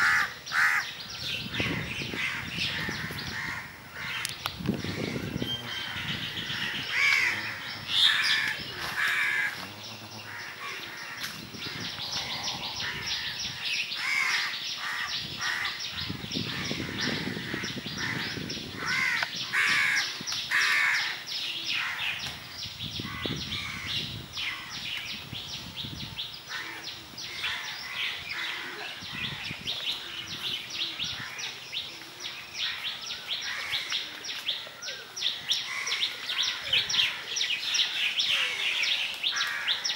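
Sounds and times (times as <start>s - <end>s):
crows cawing: 0.0s - 0.9s, 1.7s - 15.8s, 16.4s - 21.2s, 35.7s - 37.2s.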